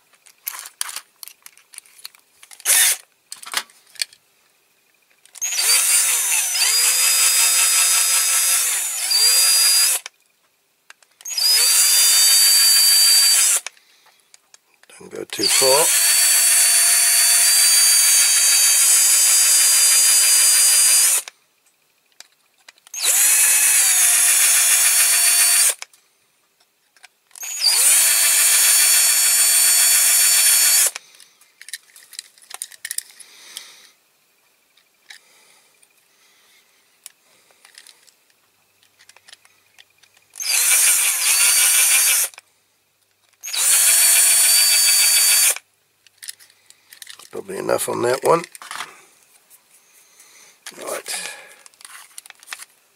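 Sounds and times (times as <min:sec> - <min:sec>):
electric drill whining: 0:02.6 - 0:03.0, 0:05.4 - 0:10.1, 0:11.2 - 0:13.7, 0:15.3 - 0:21.3, 0:22.9 - 0:25.8, 0:27.4 - 0:31.0, 0:40.4 - 0:42.4, 0:43.4 - 0:45.6.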